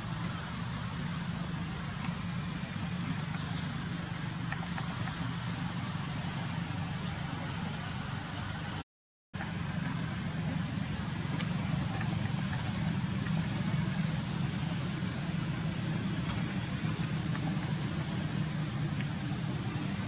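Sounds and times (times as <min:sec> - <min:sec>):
steady low rumble: 0:09.4 - 0:20.0.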